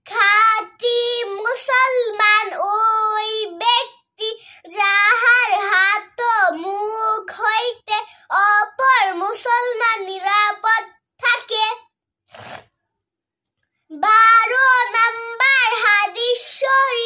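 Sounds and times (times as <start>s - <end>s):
girl chanting sing-song melody: 0.0s - 10.9s, 13.9s - 17.0s.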